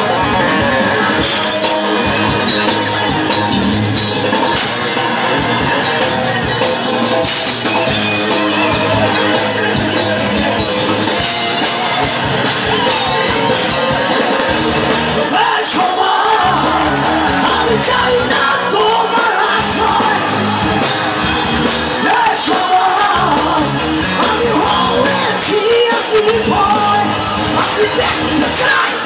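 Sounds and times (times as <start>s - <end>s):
live rock band playing: 0.0s - 29.0s
person singing: 15.0s - 29.0s.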